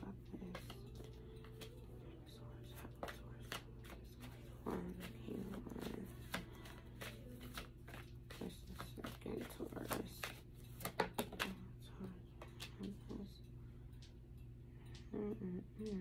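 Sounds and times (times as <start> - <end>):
low hum: 0.0 - 16.0
cards being shuffled: 0.2 - 1.8, 2.6 - 11.6.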